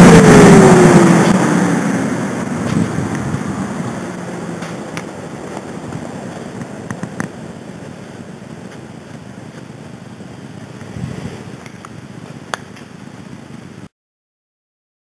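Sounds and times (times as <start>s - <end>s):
blower rushing air: 0.0s - 13.9s.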